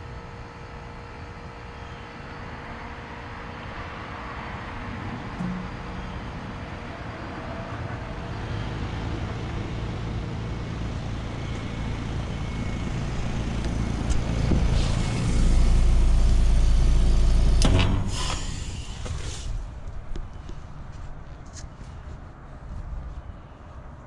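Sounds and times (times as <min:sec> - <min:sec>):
loud low rumble: 0:05.3 - 0:18.9
compressor humming: 0:05.3 - 0:19.7
loud noisy bursts: 0:11.1 - 0:19.6.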